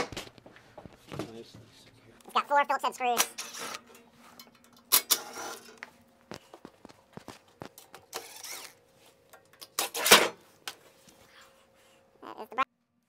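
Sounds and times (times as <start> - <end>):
metal scraping clatters: 3.2 - 5.8.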